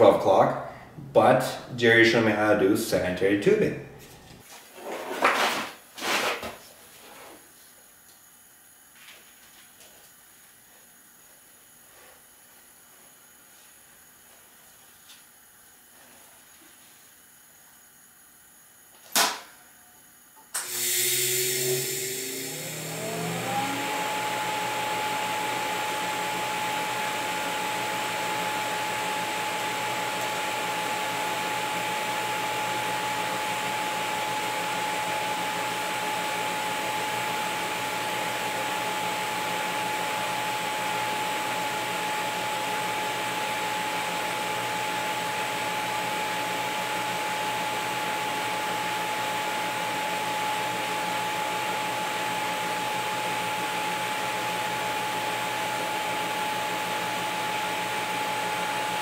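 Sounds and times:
welding arc hissing: 20.6 - 22.3.

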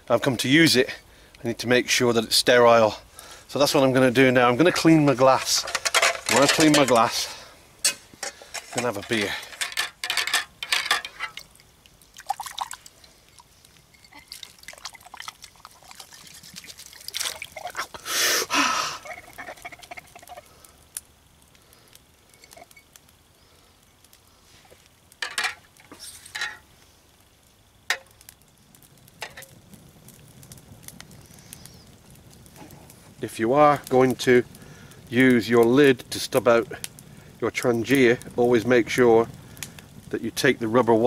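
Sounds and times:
water swirling and splashing: 11.4 - 18.0.

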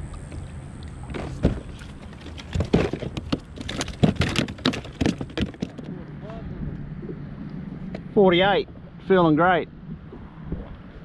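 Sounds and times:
fish slapping on plastic deck: 1.2 - 5.9.

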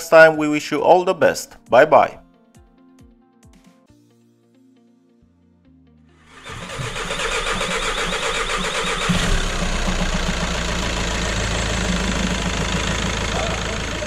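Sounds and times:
diesel engine idling: 6.3 - 14.0
starter motor cranking: 6.3 - 14.0.

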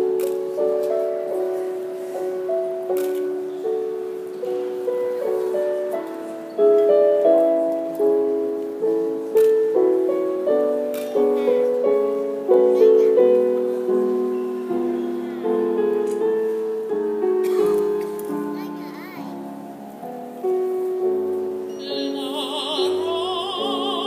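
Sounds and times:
slow plucked instrument melody: 20.0 - 24.0.

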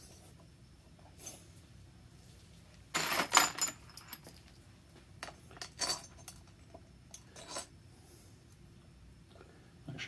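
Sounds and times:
metal bolts rattling in a plastic box: 2.9 - 4.5.

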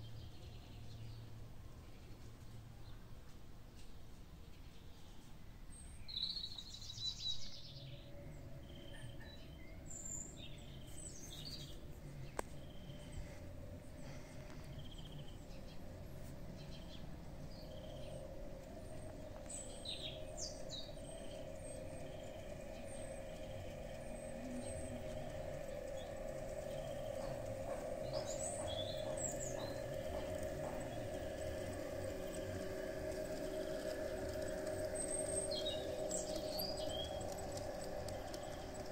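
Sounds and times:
birds chirping: 4.5 - 38.9
model train motor humming: 8.2 - 38.9.

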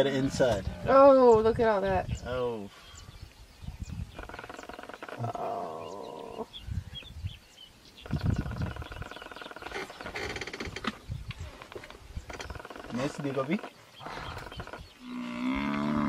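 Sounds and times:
buffalo bellowing: 12.8 - 16.0.

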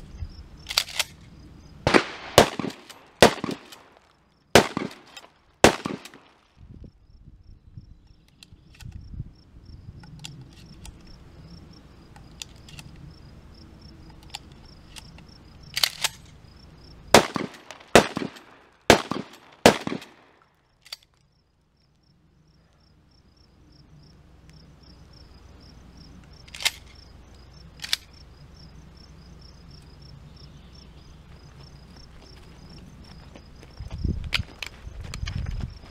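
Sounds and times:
shotgun shots: 1.8 - 4.0, 4.6 - 6.4, 17.1 - 20.4.

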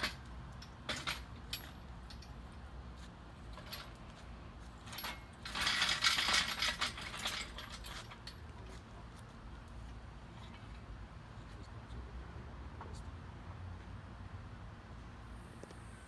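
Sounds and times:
chain rattling: 0.0 - 2.4, 3.5 - 4.1, 4.8 - 8.4.

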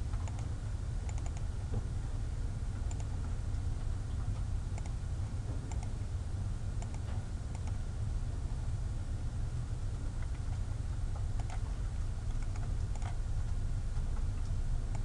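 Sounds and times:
steady low hum: 0.0 - 15.0
computer mouse clicks: 0.2 - 0.5, 1.1 - 1.5, 2.9 - 3.1, 4.8 - 5.0, 5.7 - 6.0, 6.8 - 7.8, 11.4 - 11.6, 12.3 - 13.2.

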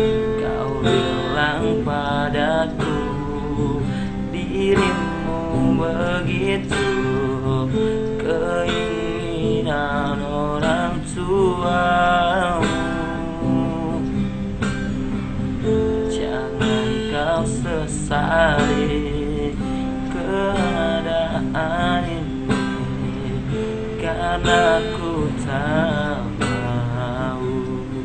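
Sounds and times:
man singing: 0.0 - 14.4, 15.9 - 28.0
strummed acoustic guitar: 0.0 - 28.0.

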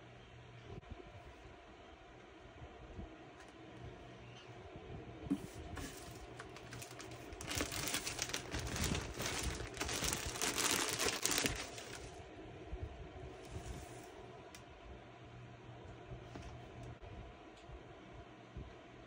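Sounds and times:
plastic bag crinkling: 5.8 - 12.2.

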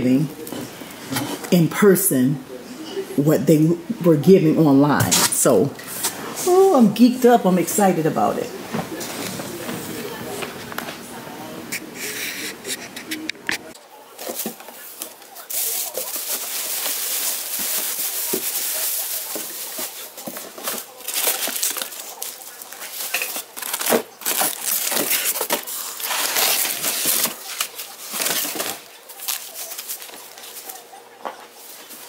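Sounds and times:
packaging crinkling and rustling: 14.1 - 32.0.

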